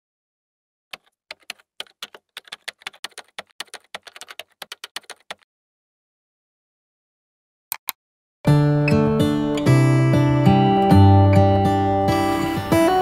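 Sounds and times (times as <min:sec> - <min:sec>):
keyboard key clicks: 0:00.9 - 0:05.4.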